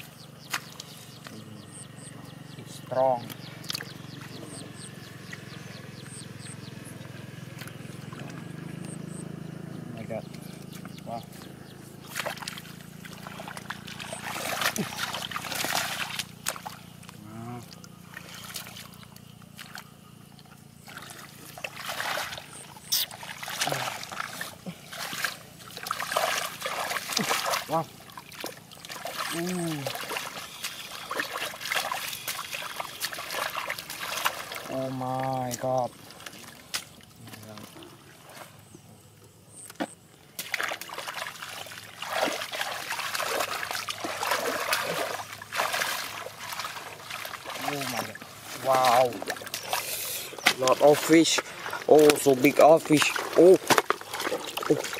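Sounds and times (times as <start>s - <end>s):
hands splashing in muddy water: 0.0s - 1.0s, 12.0s - 19.9s, 20.9s - 38.5s, 40.3s - 54.9s.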